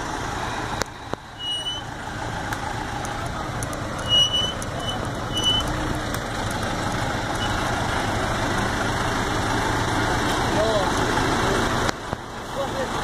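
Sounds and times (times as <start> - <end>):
heavy diesel engines running: 0.0 - 13.0
short high beeps: 1.4 - 1.8.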